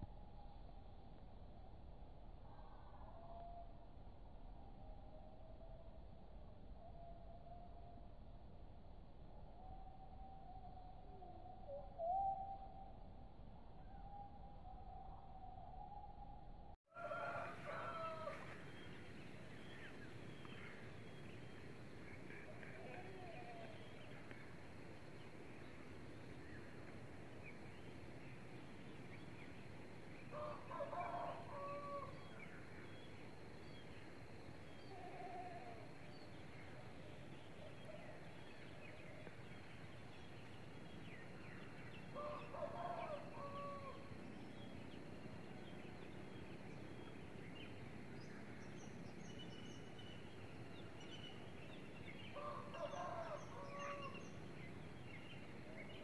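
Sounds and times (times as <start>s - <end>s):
faint rooster crowing: 16.9s - 18.9s, 30.3s - 32.6s, 42.0s - 44.2s, 52.2s - 54.4s
outdoor background hiss: 17.0s - 56.0s
small birds chirping: 17.8s - 56.0s.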